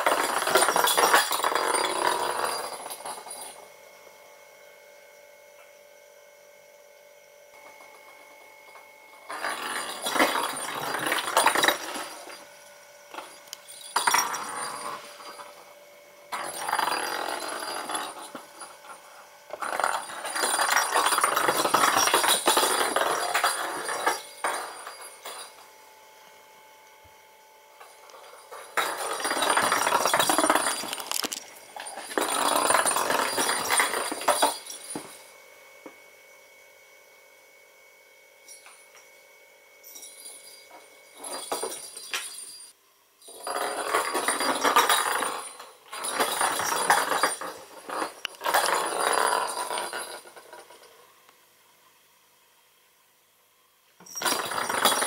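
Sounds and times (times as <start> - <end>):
plastic ball rattling on wooden floor: 0.0 - 3.4, 9.3 - 12.4, 16.3 - 18.9, 19.5 - 25.5, 28.2 - 35.1, 43.4 - 50.9, 54.1 - 55.0.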